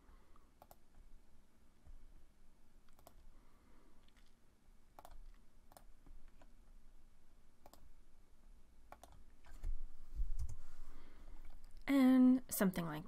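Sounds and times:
computer mouse clicking: 0.6 - 1.0, 2.8 - 3.3, 5.0 - 6.5, 7.6 - 7.9, 8.9 - 9.8.

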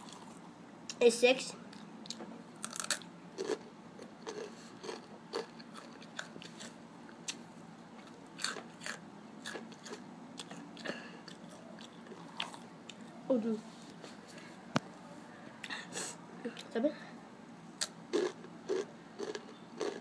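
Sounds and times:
chips being chewed: 2.1 - 7.4, 8.0 - 13.0, 17.8 - 20.0.

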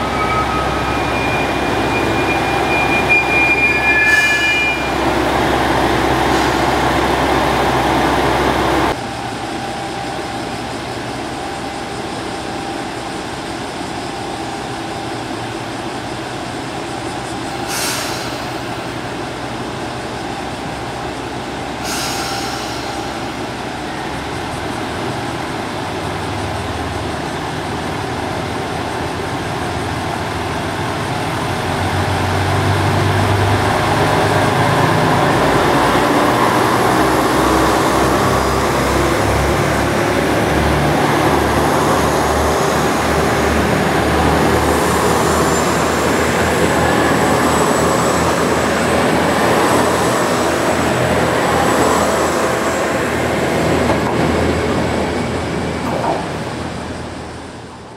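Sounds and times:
thin high whine: 0.0 - 5.3
diesel train engine rumble: 0.0 - 57.9.

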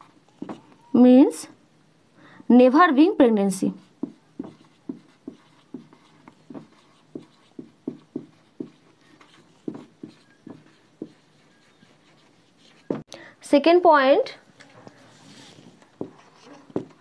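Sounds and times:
marker squeaking on whiteboard: 0.0 - 0.9, 4.0 - 13.1, 14.9 - 17.0.

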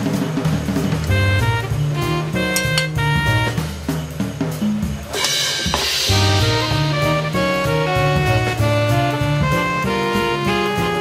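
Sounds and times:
upbeat jazzy tune with horns: 0.0 - 11.0
bass line: 0.9 - 4.1, 6.1 - 11.0.

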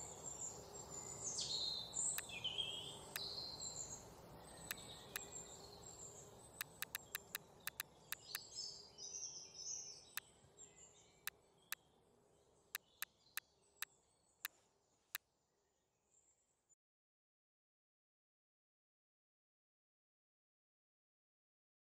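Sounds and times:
faint birdsong: 0.0 - 14.4
mouse clicks: 6.6 - 8.4.

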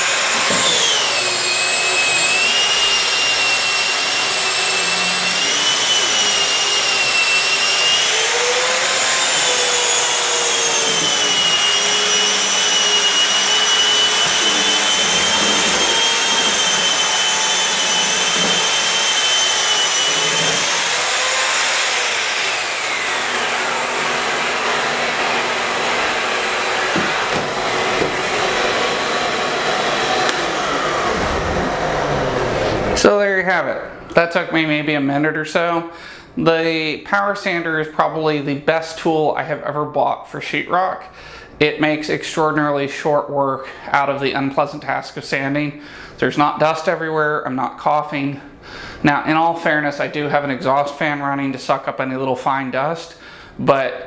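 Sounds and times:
drywall sander motor whine: 0.0 - 33.0.

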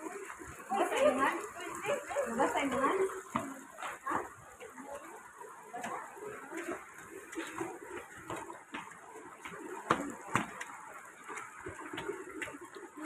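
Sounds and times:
footsteps on stone stairs: 5.8 - 13.0.

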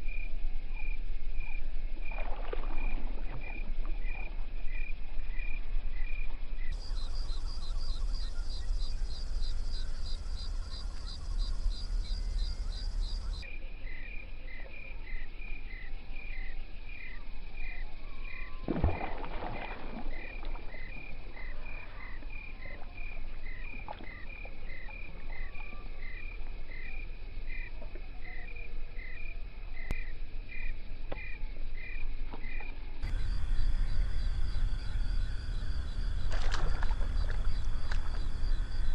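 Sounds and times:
water splash: 2.1 - 3.5, 18.7 - 20.8, 33.0 - 38.9
frog chorus chirping: 6.6 - 13.6, 33.0 - 38.9
low rumble: 33.0 - 38.9.

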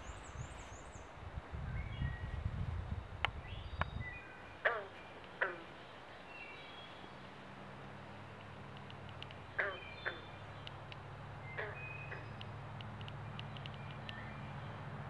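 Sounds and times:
frogs calling: 4.6 - 6.6, 8.1 - 14.8.

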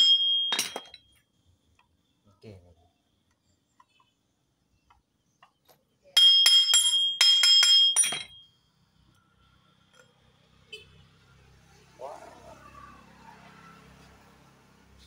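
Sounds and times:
ringing metal clinks: 0.0 - 1.1, 6.2 - 8.6.

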